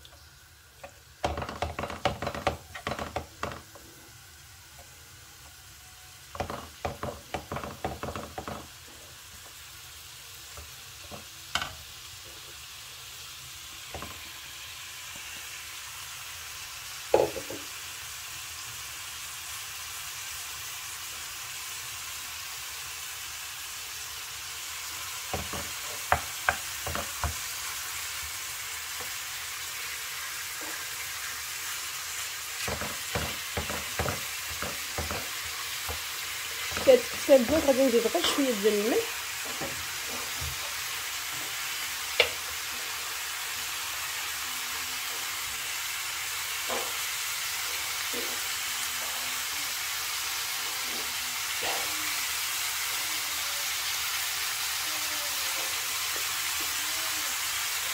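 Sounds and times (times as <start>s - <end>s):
meat sizzling in frying pan: 0.0s - 57.9s
wooden spatula scraping pan: 32.6s - 38.8s.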